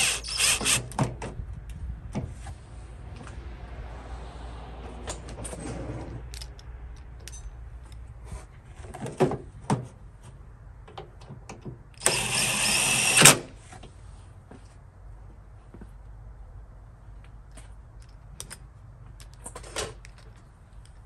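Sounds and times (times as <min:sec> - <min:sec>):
cordless drill driving a bolt: 0:00.0 - 0:01.0, 0:12.0 - 0:13.5.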